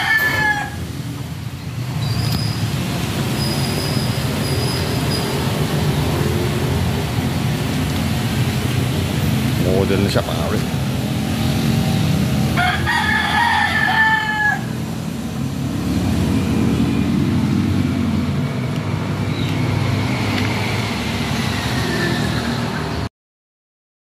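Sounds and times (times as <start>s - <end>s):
rooster crowing: 0.0s - 1.0s, 12.4s - 14.8s.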